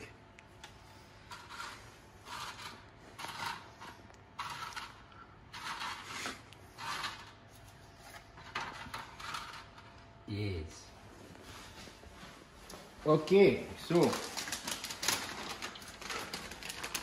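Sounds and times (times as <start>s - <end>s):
crackers scraping on baking tray: 1.2s - 7.4s, 8.4s - 9.9s.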